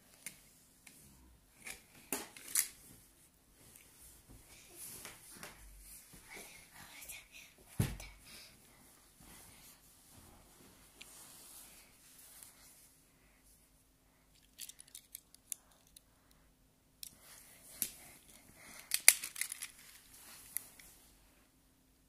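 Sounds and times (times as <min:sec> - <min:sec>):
toy cars clicking and rattling: 0:14.4 - 0:16.0, 0:17.8 - 0:20.6.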